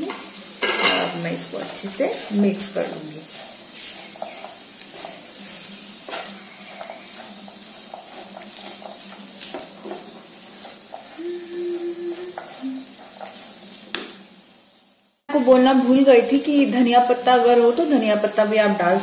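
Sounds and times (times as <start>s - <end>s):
frying hiss: 0.0s - 19.0s
spatula scraping a frying pan: 0.6s - 11.2s, 12.2s - 13.8s
short steady tone: 11.2s - 12.8s.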